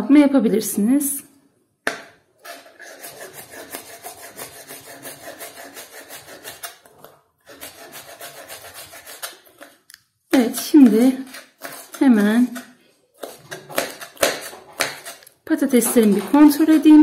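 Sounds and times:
knife slicing on cutting board: 11.3s - 15.2s.

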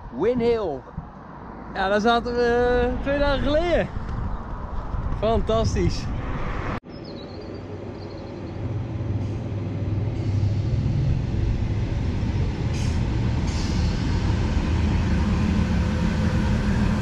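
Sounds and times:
train engine and wheels rumbling: 6.4s - 17.0s.

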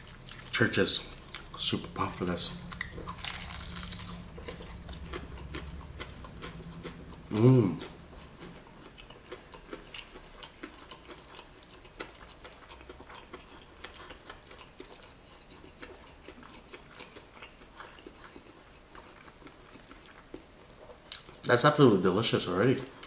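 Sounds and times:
person chewing crispy food: 0.0s - 21.6s.

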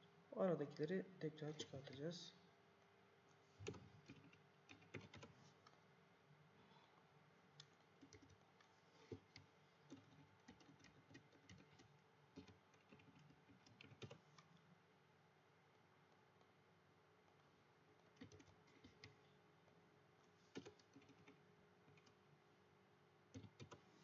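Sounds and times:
faint steady hum: 0.0s - 24.0s
typing on computer keyboard: 3.6s - 5.4s, 7.6s - 14.5s, 18.0s - 19.2s, 20.5s - 22.2s, 23.3s - 23.9s.

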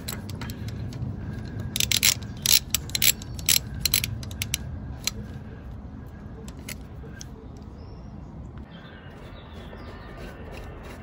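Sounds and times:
socket ratchet clicking: 1.5s - 5.2s.

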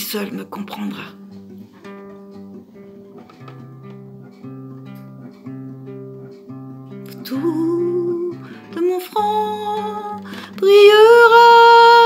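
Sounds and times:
guitar chords: 0.0s - 12.0s
person singing: 7.1s - 12.0s.

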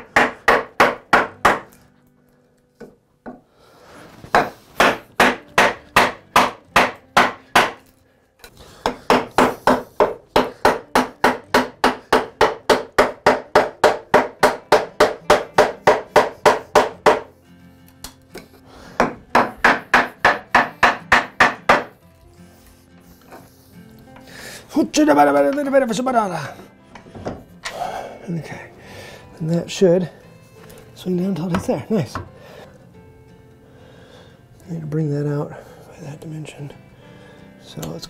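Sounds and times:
mallet striking chisel into wood: 0.0s - 1.8s, 4.3s - 7.8s, 8.8s - 17.3s, 19.0s - 21.9s.

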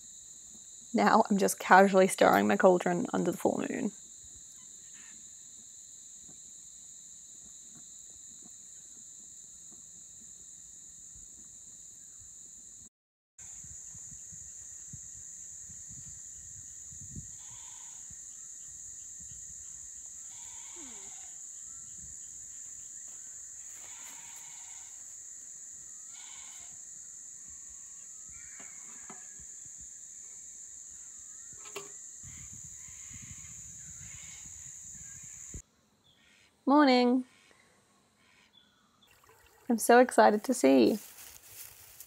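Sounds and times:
night insects chorus: 0.0s - 36.6s, 38.2s - 42.0s
short animal calls: 20.3s - 21.4s
low wind rumble: 32.2s - 35.6s.

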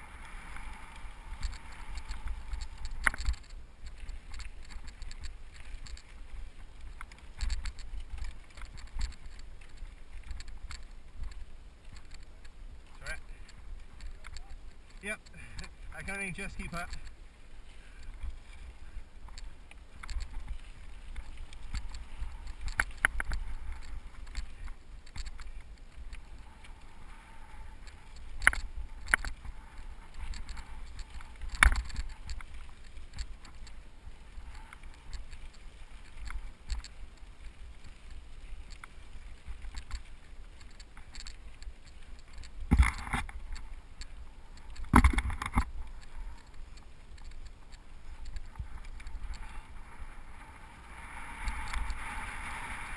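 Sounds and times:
wind rumbling on microphone: 0.0s - 52.9s
bike rattling and knocking: 0.6s - 12.4s, 19.2s - 26.4s, 27.8s - 33.8s, 40.6s - 49.8s.

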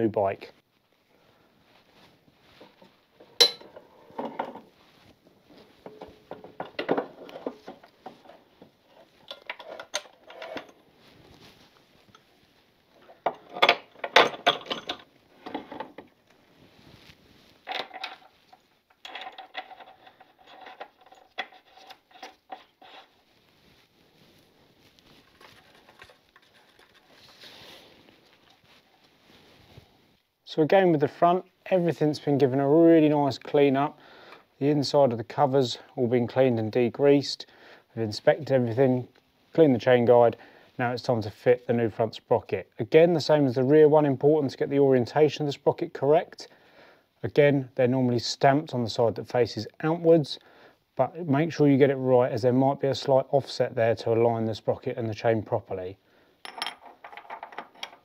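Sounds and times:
metallic clinks and rattles: 17.6s - 22.8s, 56.4s - 58.0s.

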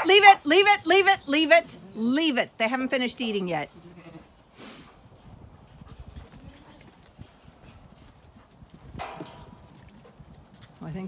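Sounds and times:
sheep hooves shuffling and knocking: 5.2s - 11.0s.

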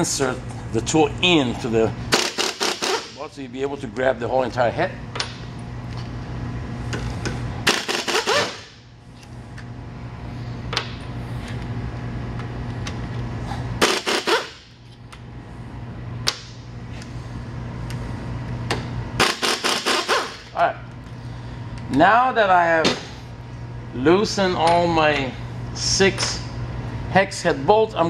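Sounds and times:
power ratchet rapid clicking: 2.1s - 3.2s, 7.6s - 8.7s, 13.8s - 14.6s, 19.2s - 20.5s.

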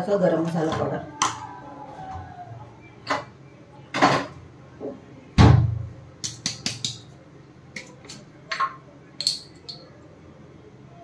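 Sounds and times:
utensils and containers clicking: 7.8s - 9.8s.

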